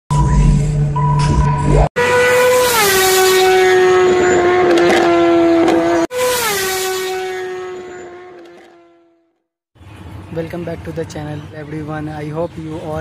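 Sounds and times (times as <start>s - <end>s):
engine sound effect: 0.1s - 9.3s.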